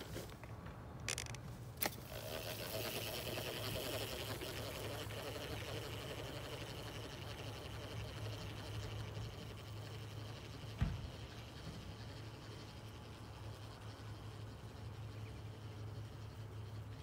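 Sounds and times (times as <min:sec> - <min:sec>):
steady low hum: 0:00.0 - 0:17.0
dull thump: 0:10.8 - 0:11.2.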